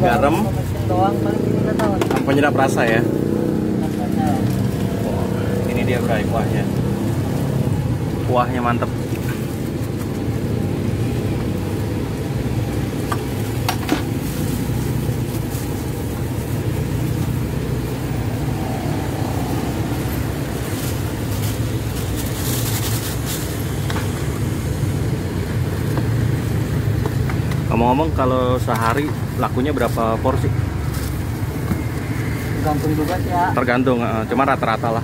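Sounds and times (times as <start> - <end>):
road traffic rumble: 0.0 - 35.0
plastic bags rustling: 13.2 - 24.7.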